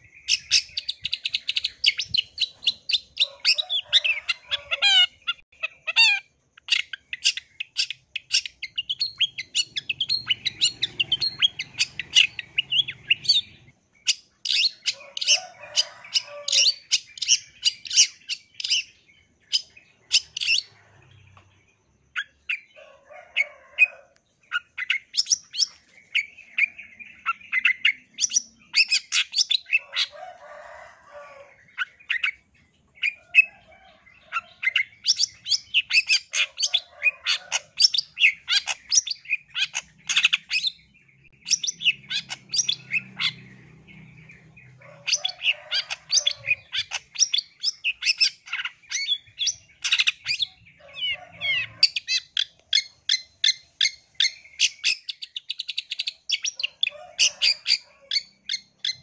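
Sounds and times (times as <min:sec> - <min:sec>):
bird chattering song: 0:00.0 - 0:59.0
harsh scratchy bird calls: 0:00.0 - 0:59.0.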